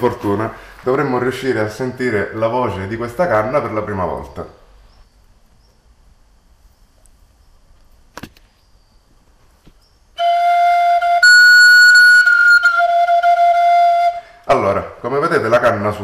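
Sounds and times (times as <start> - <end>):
breathy flute note: 10.2 - 14.5.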